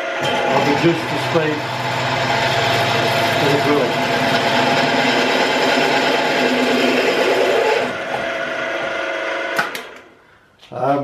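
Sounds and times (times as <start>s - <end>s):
drill bit cutting workpiece: 0.0s - 9.1s
drill press gear whine: 0.0s - 9.6s.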